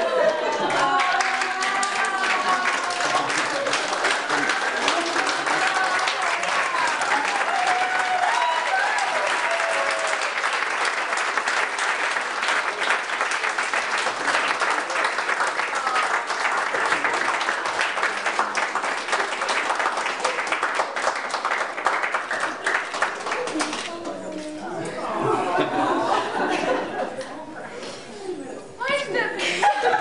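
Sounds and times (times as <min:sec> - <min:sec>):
excited voices calling out: 0:00.0 - 0:03.6
people clapping: 0:00.0 - 0:25.0.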